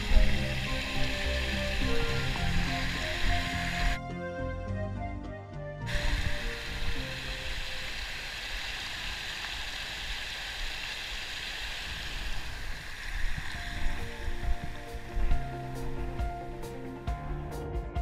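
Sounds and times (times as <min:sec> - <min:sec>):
stream rushing over rocks: 0:00.0 - 0:04.0, 0:05.9 - 0:16.2.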